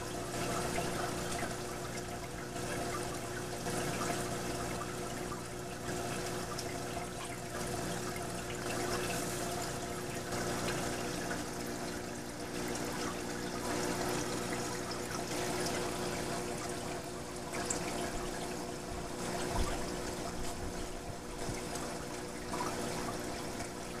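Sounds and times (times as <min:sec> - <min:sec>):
water trickling and splashing: 0:00.0 - 0:24.0.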